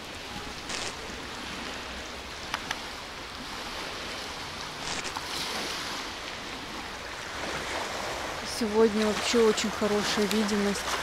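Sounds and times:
small waves lapping on shore: 0.0s - 11.0s
wind: 0.0s - 11.0s
light clicks: 2.5s - 2.8s.

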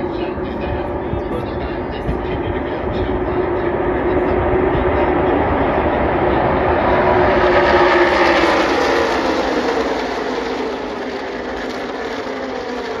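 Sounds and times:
racing car engines passing: 0.0s - 13.0s.

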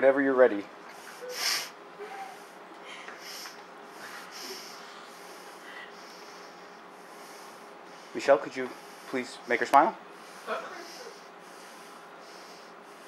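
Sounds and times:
sharp sniff: 1.0s - 1.8s, 3.2s - 8.2s
person breathing: 1.0s - 9.4s, 10.2s - 13.0s.

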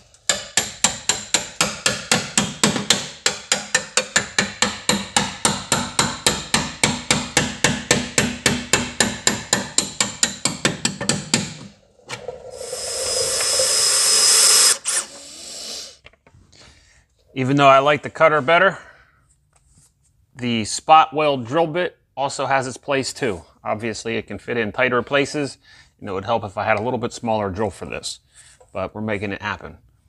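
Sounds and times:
drill cutting into steel: 12.2s - 16.0s.

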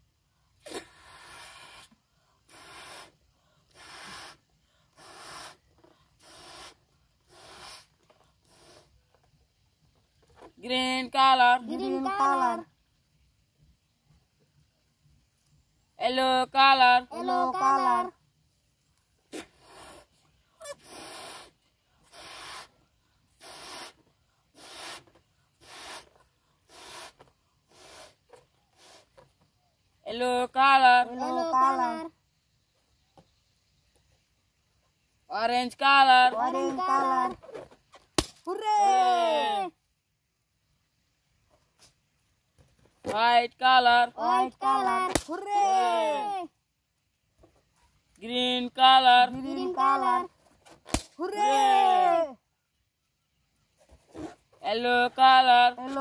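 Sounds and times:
quiet breaths: 0.0s - 10.2s, 18.4s - 30.0s
breathy blows into balloon: 0.6s - 9.0s, 19.3s - 29.2s.

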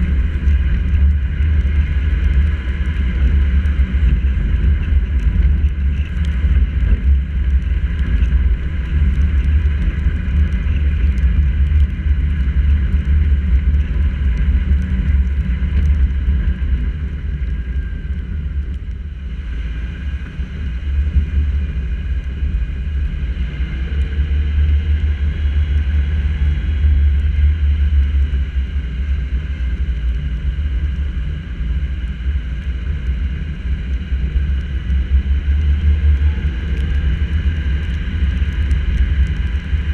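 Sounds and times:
raindrops ticking on camera: 0.0s - 19.1s, 32.2s - 39.9s
wind and road rumble: 0.0s - 39.9s.

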